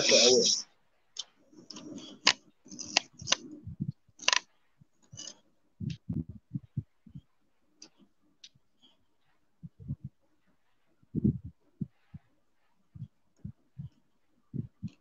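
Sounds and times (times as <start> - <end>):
computer mouse clicking: 1.2 - 3.6, 4.2 - 6.0.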